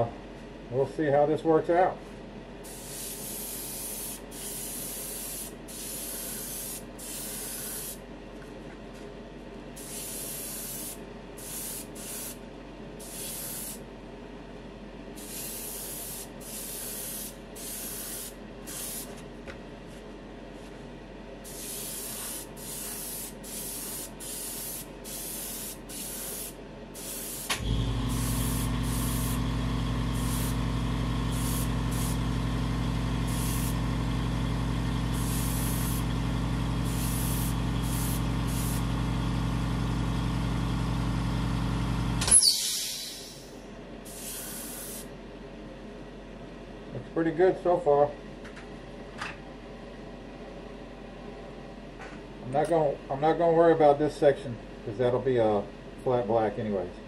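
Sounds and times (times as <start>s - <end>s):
airbrush spraying hiss: 2.6s - 8.0s, 9.8s - 12.4s, 13.0s - 13.8s, 15.2s - 19.1s, 21.4s - 29.5s, 30.1s - 30.6s, 31.2s - 32.2s, 33.2s - 33.8s, 35.1s - 36.2s, 36.8s - 38.9s, 44.1s - 45.1s
air compressor humming: 2.6s - 8.1s, 9.8s - 12.4s, 15.2s - 19.4s, 21.4s - 45.2s.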